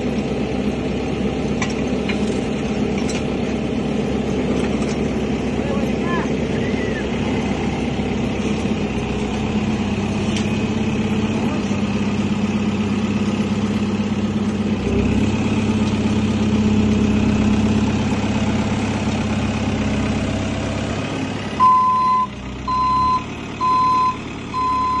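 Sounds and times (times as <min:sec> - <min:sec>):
diesel engine running: 0:00.0 - 0:25.0
reversing alarm beeping: 0:21.6 - 0:25.0.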